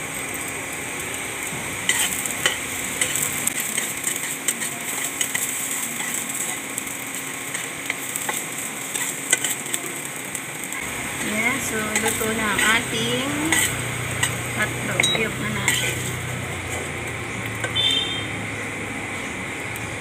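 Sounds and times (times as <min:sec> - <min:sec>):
food sizzling in oil: 0:00.0 - 0:20.0
metal spatula scraping a pan: 0:01.9 - 0:06.6, 0:11.2 - 0:17.0.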